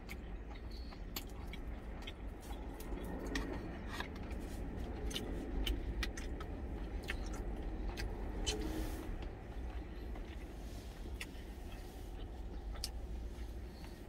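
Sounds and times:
chewing mouth sounds: 0.0 - 14.0
low rumble in truck cab: 0.0 - 14.0.

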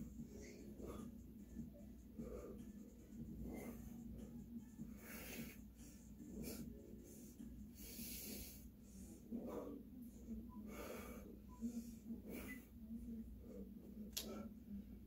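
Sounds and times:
faint steady hum: 0.0 - 15.0
person breathing hard: 4.8 - 9.8, 10.6 - 12.6.

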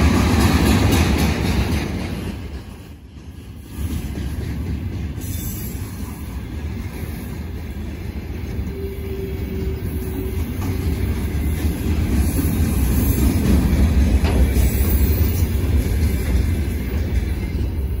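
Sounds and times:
freight train wheels rumbling: 0.0 - 18.0.

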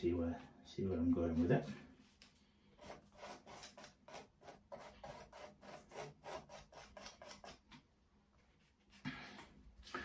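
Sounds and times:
tool scratching across paint: 2.8 - 7.7.

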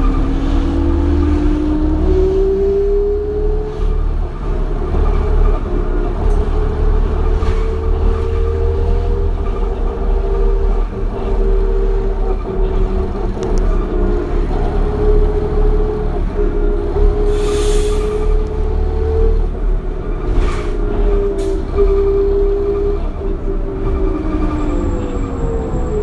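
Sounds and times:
bus engine rumble with whine: 0.0 - 26.0.

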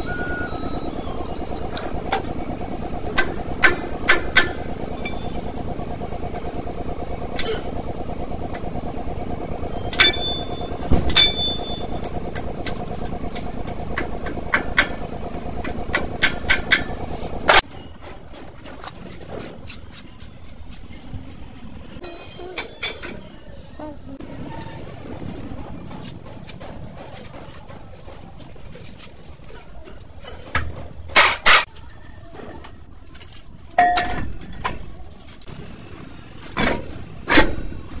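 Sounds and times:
steady mechanical hum: 0.0 - 38.0
metal tools clanking: 22.0 - 23.6
ringing metallic clinks: 22.0 - 23.6.

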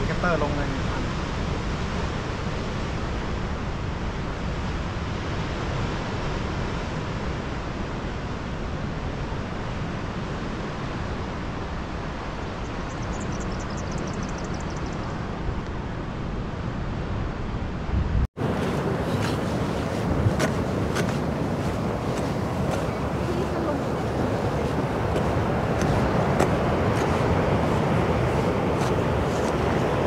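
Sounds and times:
wind buffeting microphone: 0.0 - 30.0
surf on rocks: 18.4 - 30.0.

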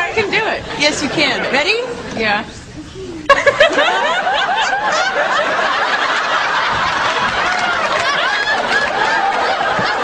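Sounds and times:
people laughing: 3.2 - 10.0.

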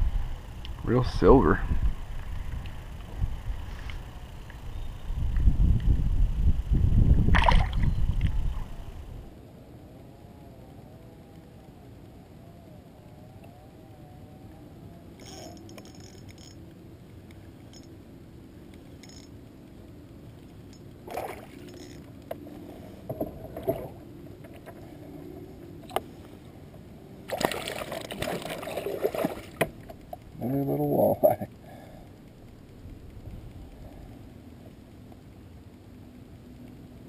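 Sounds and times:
fish splashing and thrashing water: 7.3 - 8.7, 21.0 - 21.8, 27.2 - 30.1.

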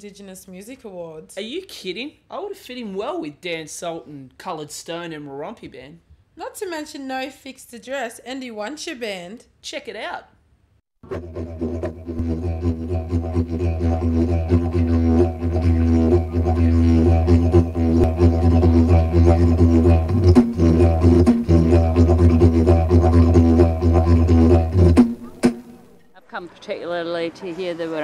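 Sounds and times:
didgeridoo drone: 11.0 - 25.7.

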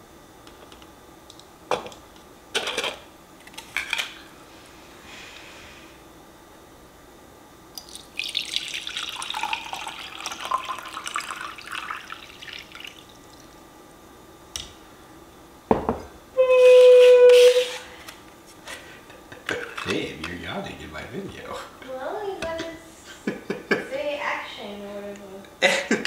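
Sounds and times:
water pouring into metal pot: 7.8 - 13.4.

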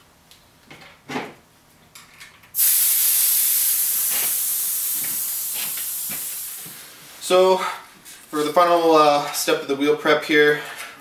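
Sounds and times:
air hissing from tyre valve: 2.6 - 6.8.

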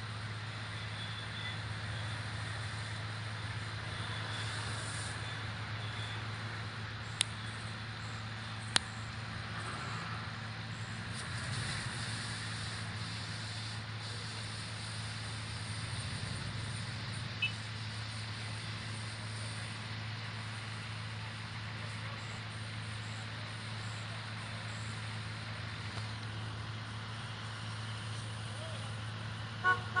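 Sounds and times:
vehicle engines idling: 0.0 - 30.0
hiss: 1.8 - 5.4, 11.1 - 29.3.

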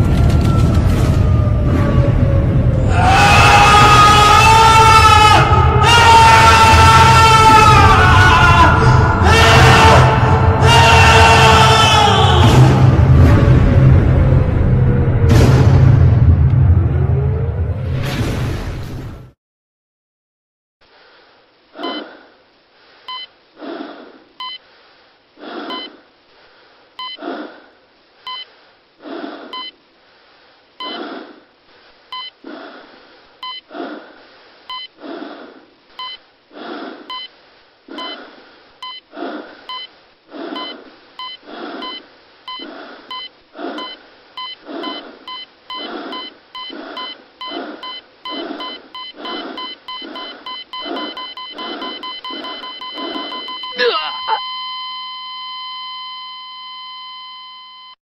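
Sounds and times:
breathy bursts of noise: 20.8 - 54.4
short electronic beeps: 21.8 - 22.1, 24.4 - 24.6, 25.7 - 25.9, 28.3 - 28.5, 29.6 - 29.8, 30.8 - 31.0, 34.7 - 34.9, 36.0 - 36.2, 38.8 - 39.0, 39.7 - 39.9, 40.6 - 58.0.

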